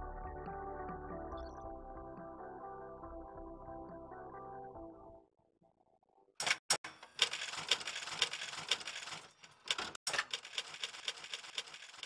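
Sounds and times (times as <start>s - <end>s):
sharp mechanical clicks: 6.4s - 12.0s.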